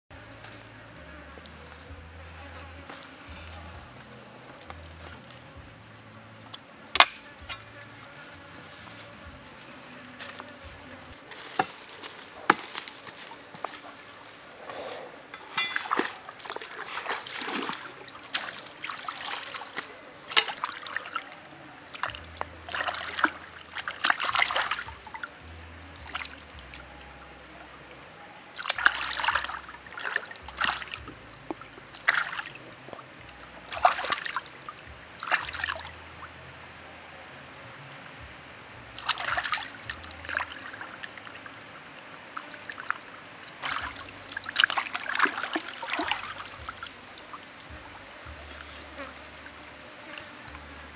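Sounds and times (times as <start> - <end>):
stream trickling: 0.2 - 50.9
splashing and sloshing water: 15.2 - 25.4, 26.0 - 27.6, 28.5 - 36.4, 38.9 - 50.9.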